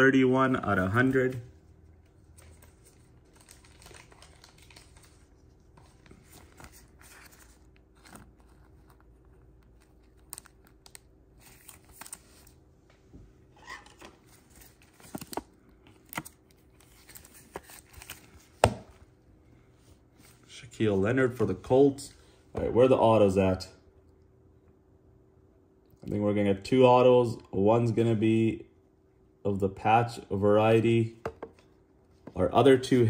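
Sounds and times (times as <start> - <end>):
plastic sleeve crinkling: 2.2 - 12.6.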